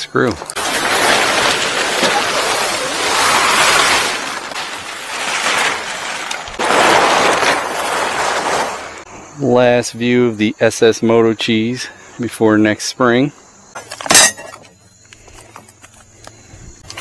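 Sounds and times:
fabric cover rustling: 0:00.5 - 0:09.1.

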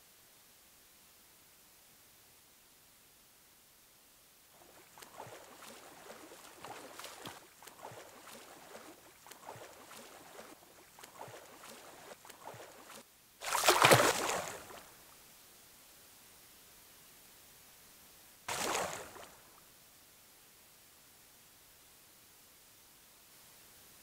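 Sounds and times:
loud splash of plunging in: 0:04.6 - 0:14.9, 0:18.5 - 0:19.5
splashing footsteps in water: 0:04.6 - 0:15.0, 0:18.5 - 0:19.5.

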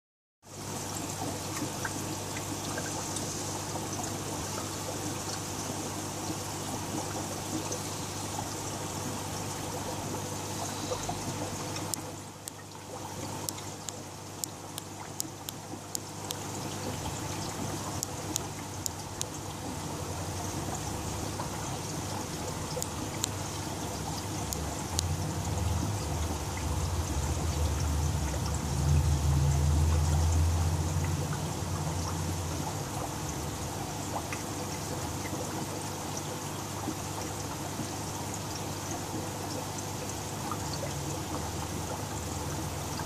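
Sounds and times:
aquarium water trickling and splashing: 0:00.4 - 0:43.0
low rumble: 0:24.5 - 0:32.0.

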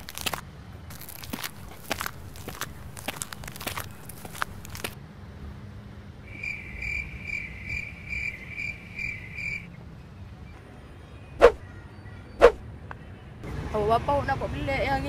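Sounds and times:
cricket chirping: 0:06.3 - 0:09.7.

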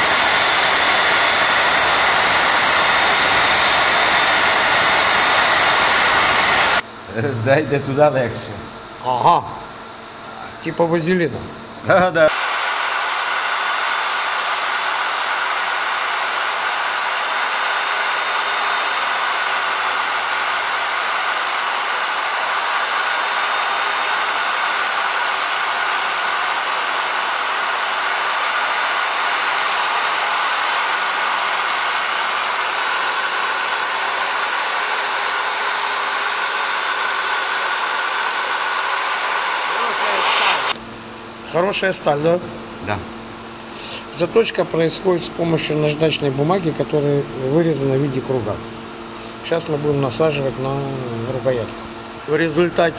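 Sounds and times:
angle grinder grinding steel: 0:00.0 - 0:06.8, 0:12.2 - 0:40.8.

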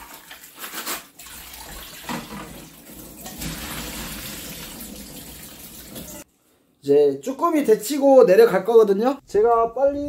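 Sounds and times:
tap water splashing into bowl: 0:01.6 - 0:02.6.

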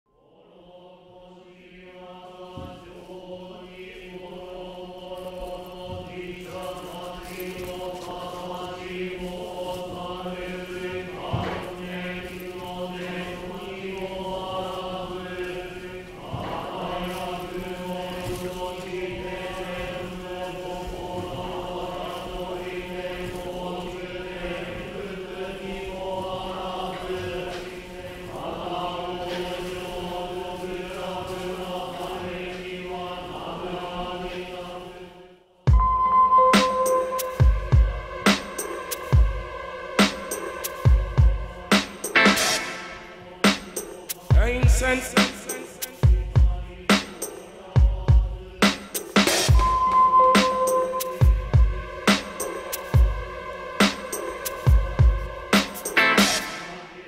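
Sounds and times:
voices chanting: 0:00.2 - 0:57.0.

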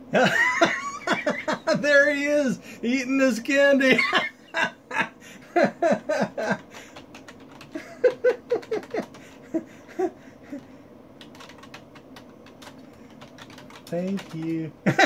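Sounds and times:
computer keyboard typing clicks: 0:06.6 - 0:09.3, 0:11.2 - 0:14.6
man chuckling softly: 0:07.7 - 0:10.8.

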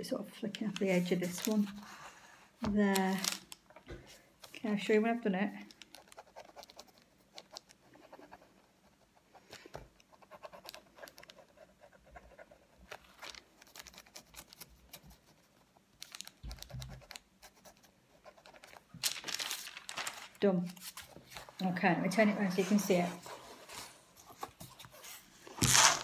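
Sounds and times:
paper rubbing: 0:16.5 - 0:26.0.

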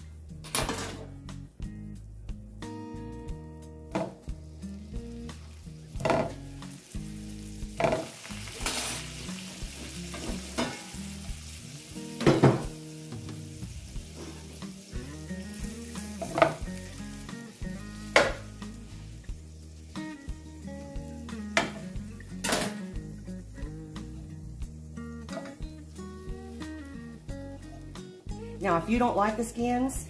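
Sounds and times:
potatoes sizzling in butter: 0:03.8 - 0:30.0
fork knocking against pan: 0:06.0 - 0:06.4.

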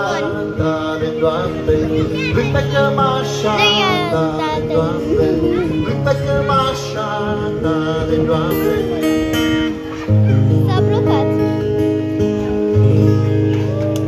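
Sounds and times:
man singing: 0:00.0 - 0:09.5
amplified acoustic guitar chords: 0:00.0 - 0:14.0.

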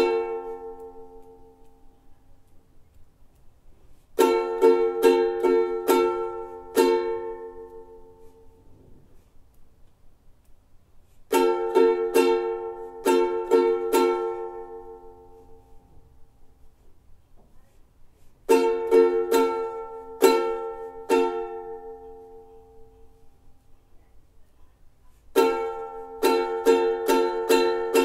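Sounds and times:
ukulele strumming: 0:00.0 - 0:02.6, 0:03.8 - 0:09.3, 0:11.0 - 0:16.8, 0:18.2 - 0:23.6, 0:25.1 - 0:28.0.

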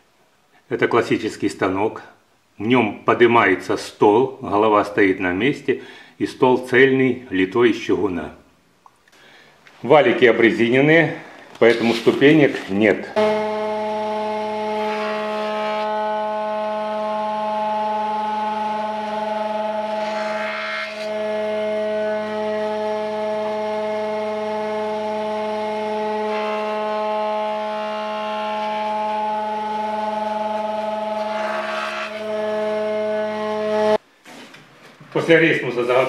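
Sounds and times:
thickness planer whining: 0:10.0 - 0:34.0
planer cutting wood: 0:13.2 - 0:34.0.

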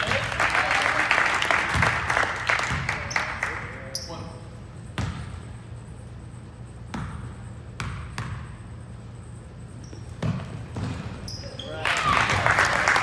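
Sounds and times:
basketball bouncing on gym floor: 0:01.6 - 0:03.2, 0:04.9 - 0:05.5, 0:06.8 - 0:08.7, 0:09.8 - 0:11.7
shoe squeak: 0:03.9 - 0:04.4, 0:09.6 - 0:11.8.

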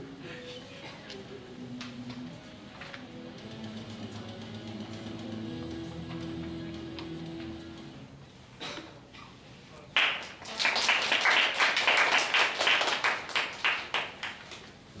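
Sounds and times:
audience applauding: 0:10.0 - 0:14.6.

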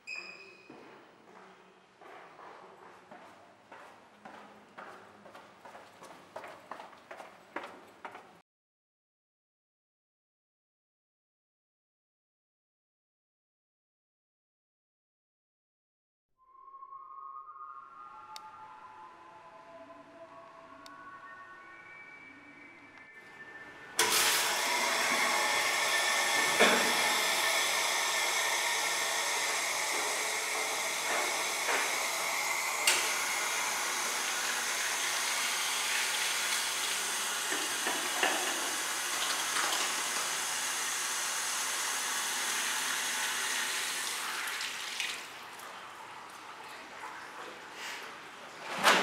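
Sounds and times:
tap water running into sink: 0:24.0 - 0:46.9.

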